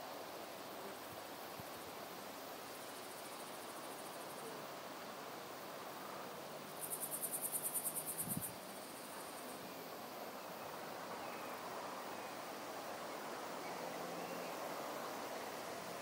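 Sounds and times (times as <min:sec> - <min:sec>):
soft outdoor hiss: 0:00.0 - 0:16.0
insect trilling: 0:06.8 - 0:09.5.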